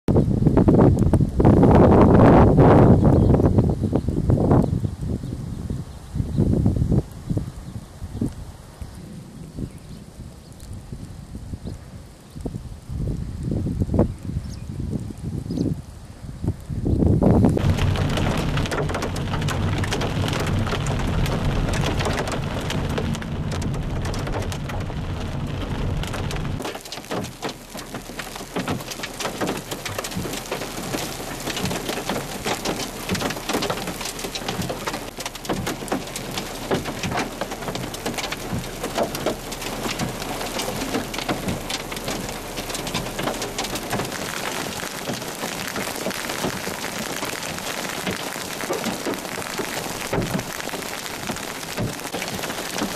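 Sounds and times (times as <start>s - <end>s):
rain hiss: 0.2s - 52.9s
vehicle rumbling on gravel road: 17.3s - 52.9s
hailstones ticking: 17.4s - 52.9s.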